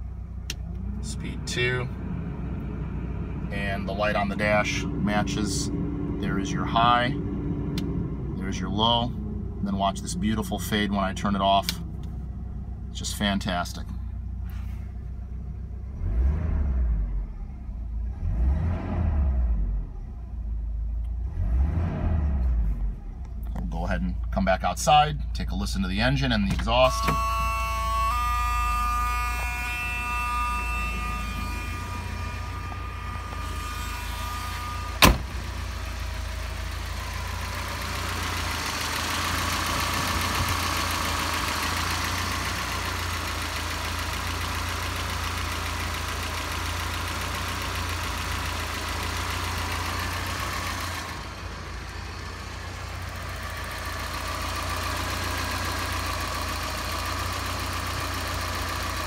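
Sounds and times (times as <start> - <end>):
car engine idling: 0.0 - 18.3, 22.3 - 59.0
sharp bang: 34.6 - 35.4.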